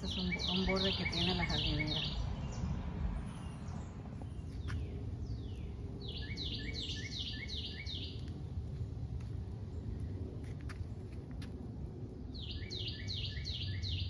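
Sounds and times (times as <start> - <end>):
bird chirping: 0.0 - 8.3, 12.3 - 14.0
steady low rumble: 0.0 - 14.0.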